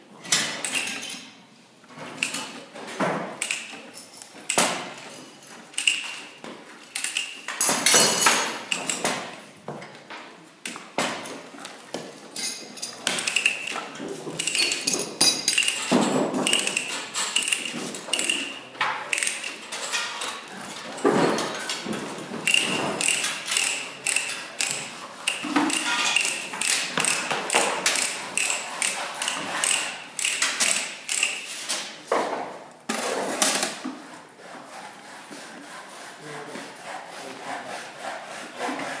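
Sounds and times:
ratchet clicks: 3.4 - 3.8, 13.1 - 13.8, 14.4 - 18.5, 19.1 - 20.0, 22.5 - 31.6
hand tools clanking on steel pipe: 12.4 - 31.4.

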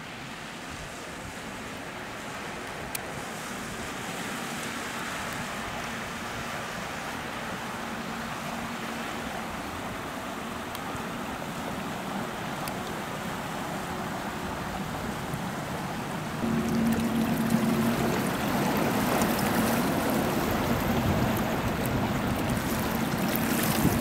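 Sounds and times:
rush of water: 0.0 - 24.0
wind: 0.0 - 24.0
faint diesel engine hum: 7.1 - 24.0.

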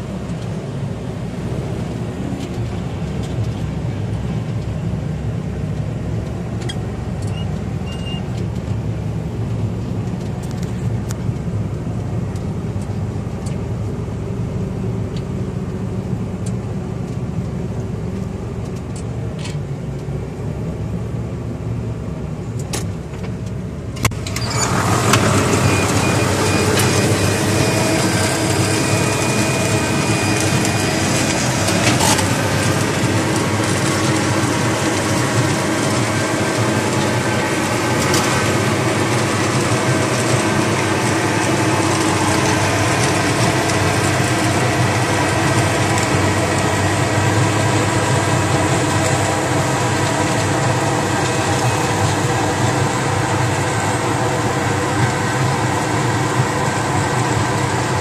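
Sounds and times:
harvester engine drone: 0.0 - 58.0
machinery rattling: 24.0 - 58.0.

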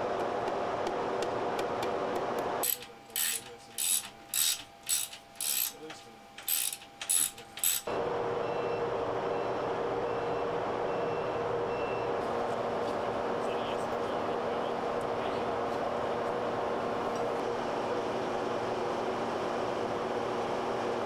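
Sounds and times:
ratchet wrench clicking: 2.6 - 5.8, 6.4 - 7.9.

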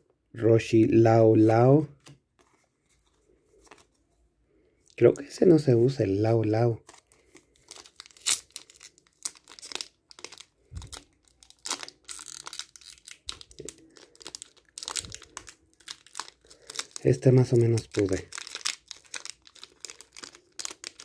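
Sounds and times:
foil wrapper crinkling and tearing: 6.8 - 21.0.

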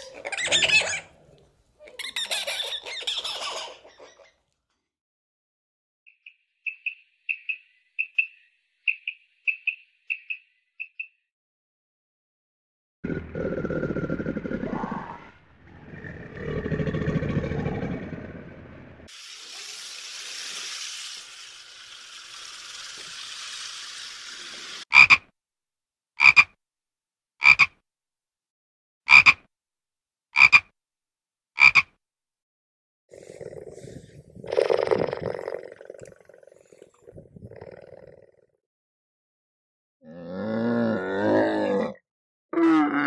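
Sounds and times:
low growl: 13.0 - 19.1, 33.1 - 38.4, 40.0 - 42.0
low animal call: 13.1 - 18.8
steady hiss: 19.1 - 24.8
frog croaking: 24.9 - 25.2, 26.2 - 26.5, 27.4 - 27.7, 29.1 - 29.4, 30.4 - 30.7, 31.6 - 31.9.

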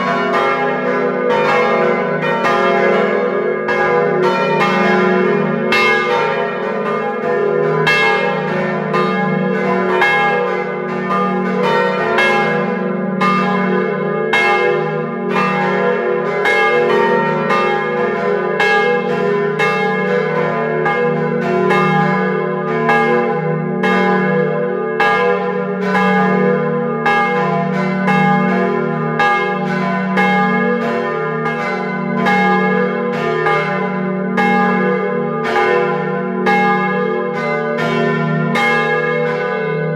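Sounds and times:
church bells pealing: 0.0 - 39.9.

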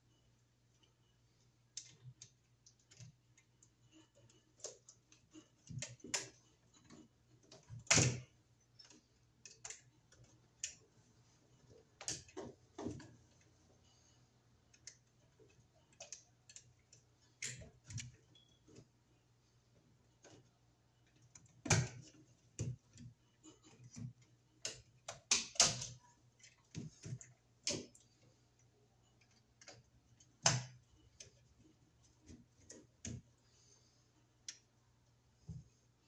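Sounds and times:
screwdriver and wire clicking on metal: 1.8 - 10.8, 14.7 - 18.8, 20.2 - 28.0.

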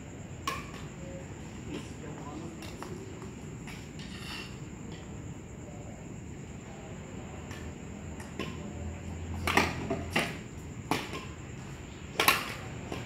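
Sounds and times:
rackets hitting shuttlecock: 9.3 - 11.4, 12.1 - 13.0.

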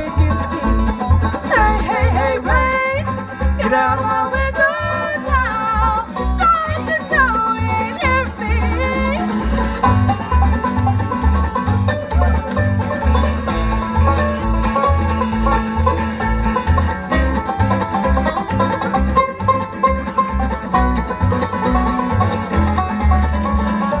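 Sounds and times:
person singing: 0.0 - 9.3
acoustic guitar picking: 0.0 - 24.0
banjo: 0.0 - 24.0
mandolin: 0.0 - 24.0
upright bass: 0.0 - 24.0.

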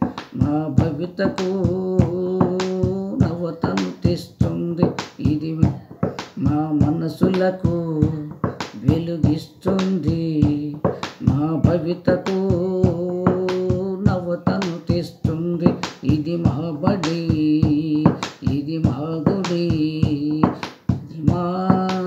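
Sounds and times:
man singing: 0.0 - 22.0
percussive clicks: 12.0 - 22.0.

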